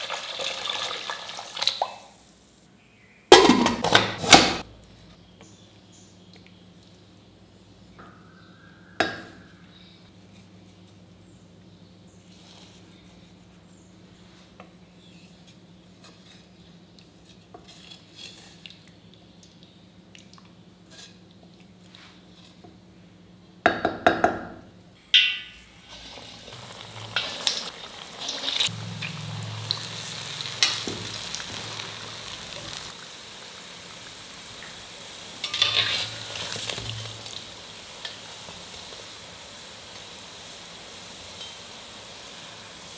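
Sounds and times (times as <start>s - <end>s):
deep-frying in hot oil sizzling: 0.0s - 2.6s, 25.6s - 42.9s
ladle stirring soup in steel pot: 35.4s - 37.2s.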